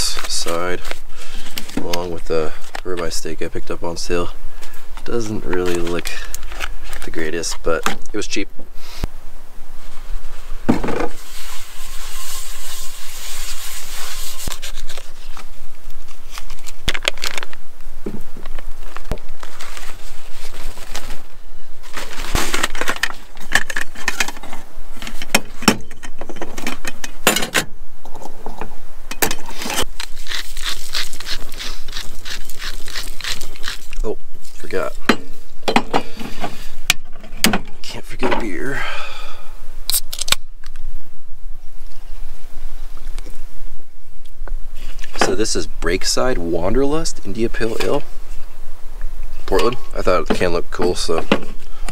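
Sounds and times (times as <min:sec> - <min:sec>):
paper towel rustling: 0:18.8 - 0:22.9.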